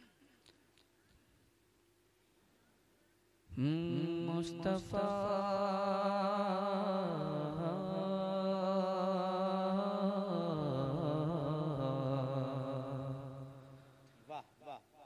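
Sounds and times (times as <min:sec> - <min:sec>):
man singing through pa system: 0:03.5 - 0:15.0.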